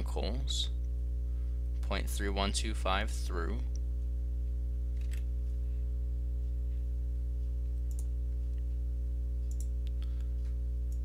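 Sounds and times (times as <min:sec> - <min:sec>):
steady low hum: 0:00.0 - 0:11.0
computer mouse clicks: 0:07.9 - 0:08.1, 0:09.4 - 0:10.0.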